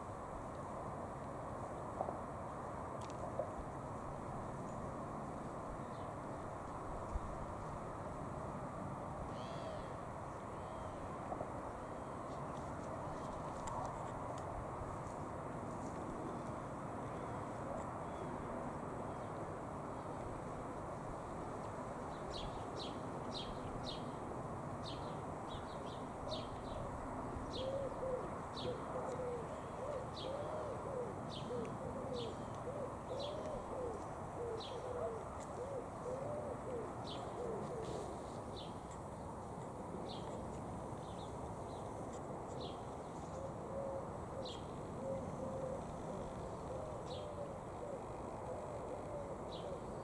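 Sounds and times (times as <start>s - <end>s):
low rapid cooing: 27.6s - 38.2s.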